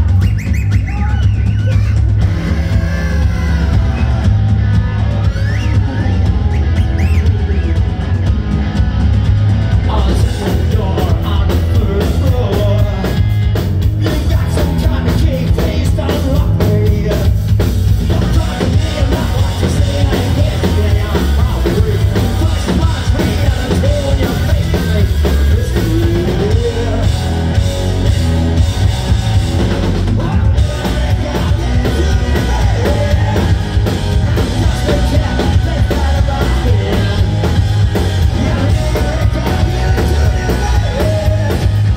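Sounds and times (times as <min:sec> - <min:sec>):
bass guitar: 0:00.0 - 0:41.9
pounding drum kit: 0:00.0 - 0:41.9
electric guitar: 0:01.1 - 0:41.9
lead vocals singing: 0:09.8 - 0:17.4, 0:18.0 - 0:27.7, 0:29.1 - 0:41.9.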